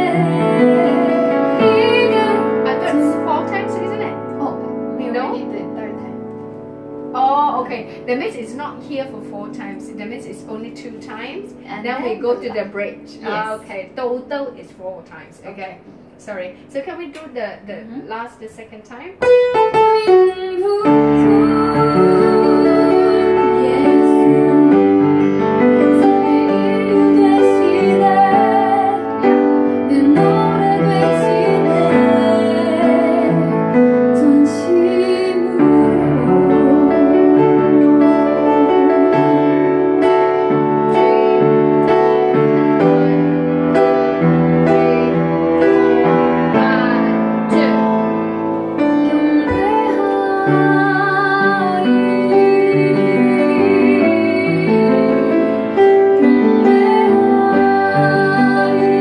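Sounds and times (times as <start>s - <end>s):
woman singing: 0.0s - 4.2s, 7.2s - 14.0s, 19.8s - 39.9s, 49.0s - 59.0s
piano chords: 0.0s - 59.0s.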